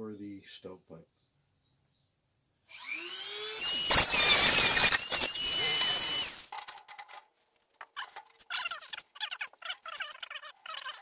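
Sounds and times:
rotary tool cutting sheet steel: 2.7 - 6.5.

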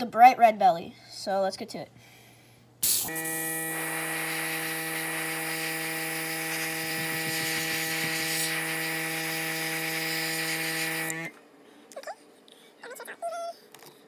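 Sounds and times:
airbrush spraying hiss: 2.8 - 11.3
air compressor hum: 2.8 - 11.4.

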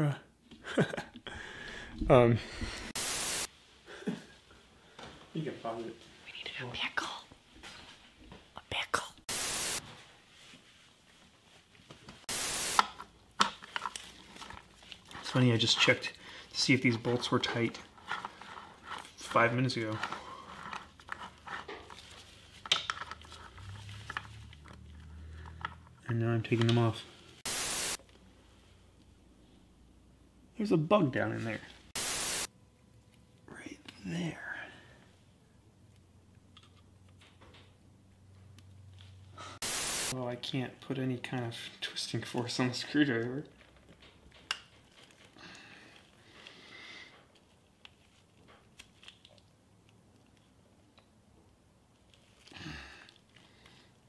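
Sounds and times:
soft hiss: 1.8 - 13.1, 26.5 - 29.9, 38.9 - 40.4
low steady hum: 32.5 - 34.0.

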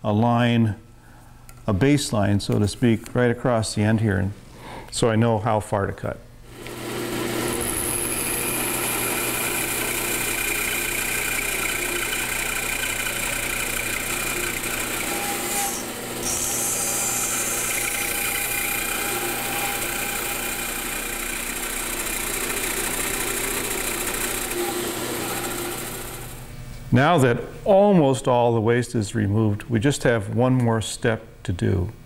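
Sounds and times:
bandsaw cutting wood: 6.5 - 26.4.

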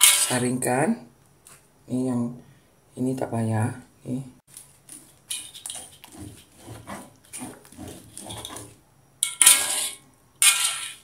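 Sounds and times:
spatula scraping wok: 0.0 - 0.6, 4.9 - 11.0.

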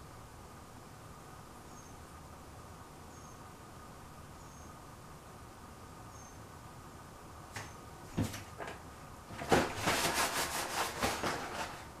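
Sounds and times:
rustling and scraping: 7.6 - 12.0.

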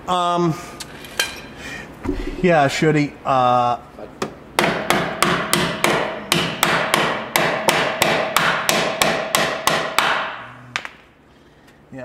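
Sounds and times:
hammer striking metal: 4.6 - 10.5.

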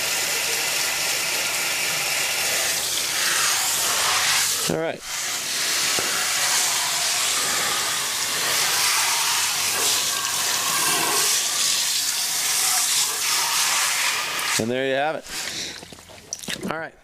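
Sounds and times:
hose spraying water: 0.0 - 16.6
water spattering off tire: 5.3 - 14.6, 15.4 - 16.7.

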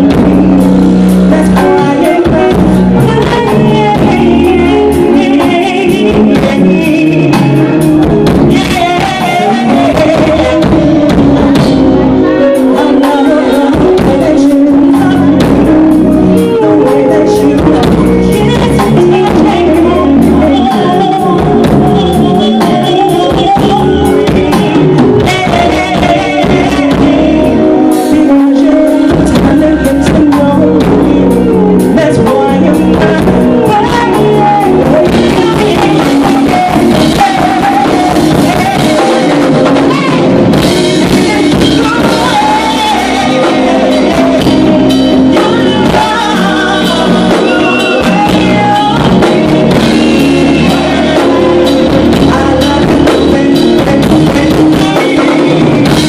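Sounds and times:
drum kit: 0.0 - 56.0
live band music: 0.0 - 56.0
people singing together: 12.6 - 56.0.

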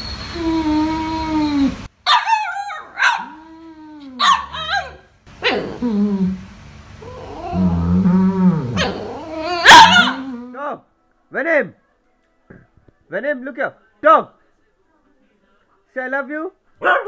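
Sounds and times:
dogs yipping and howling: 0.4 - 5.8, 8.6 - 10.5.

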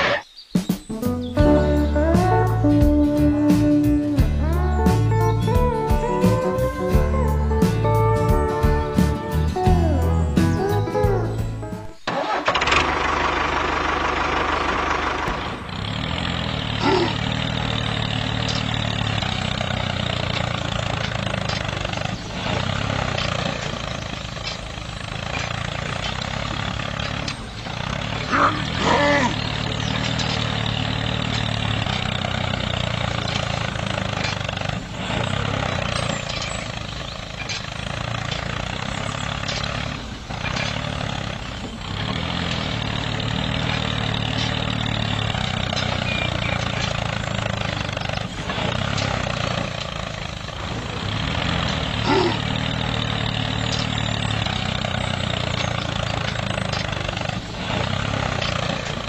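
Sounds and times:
tractor engine idling: 0.0 - 59.0.

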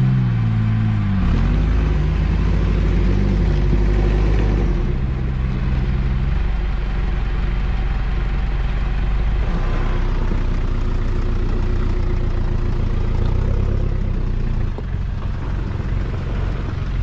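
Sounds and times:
off-road engine under load: 0.0 - 17.0.

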